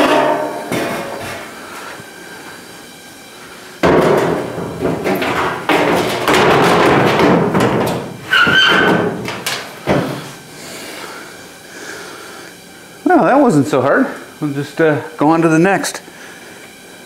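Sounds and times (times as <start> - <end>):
metallic ring: 0.0 - 1.2
sheet metal scraping and knocking: 0.0 - 1.5, 3.8 - 10.2.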